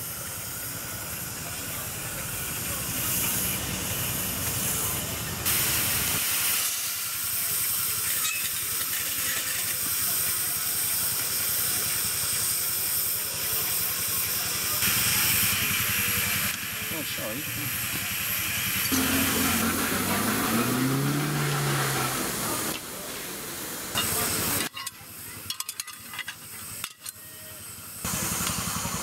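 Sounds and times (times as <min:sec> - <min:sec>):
steam hissing from locomotive: 0:00.0 - 0:29.0.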